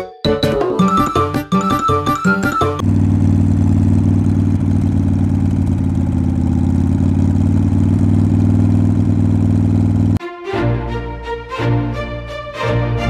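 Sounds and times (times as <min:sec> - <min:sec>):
car engine running steadily: 0:02.8 - 0:10.2.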